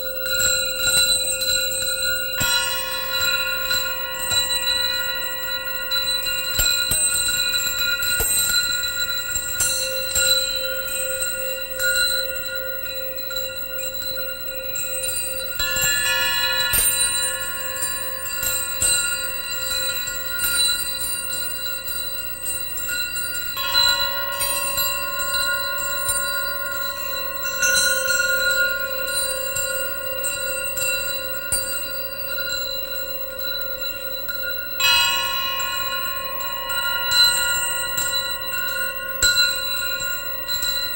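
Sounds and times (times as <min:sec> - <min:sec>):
struck metal rods ringing: 0:00.0 - 0:11.2.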